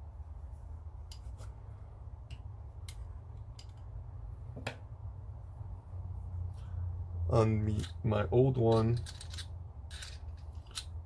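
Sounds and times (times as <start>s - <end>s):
steady low hum: 0.0s - 11.0s
metallic clicks of rifle parts: 2.2s - 3.9s, 8.6s - 11.0s.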